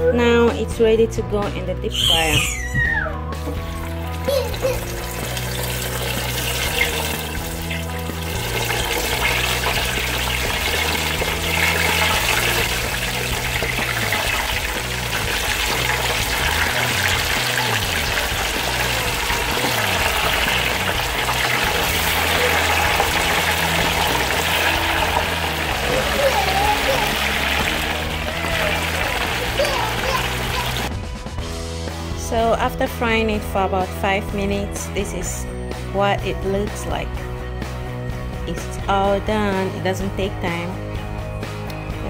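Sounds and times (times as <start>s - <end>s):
background music with low chords: 0.0s - 42.0s
oil sizzling and bubbling in fryer: 3.5s - 30.9s.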